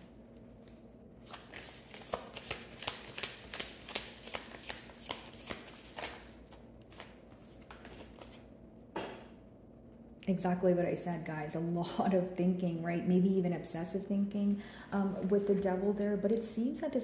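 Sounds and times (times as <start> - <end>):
cards being shuffled: 0.5 - 8.4.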